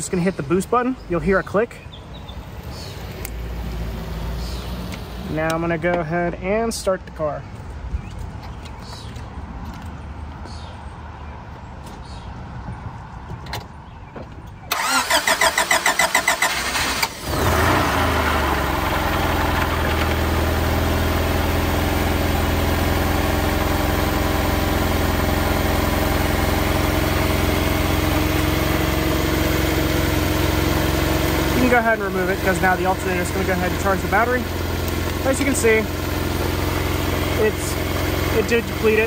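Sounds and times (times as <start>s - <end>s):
starter cranking engine: 14.7s - 20.4s
car engine idling: 14.8s - 39.0s.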